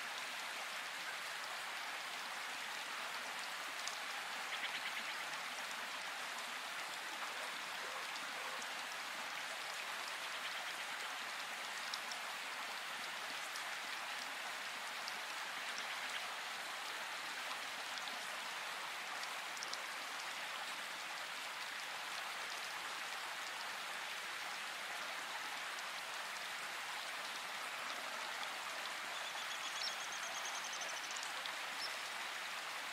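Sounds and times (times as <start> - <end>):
steady rain hiss: 0.0 - 32.9.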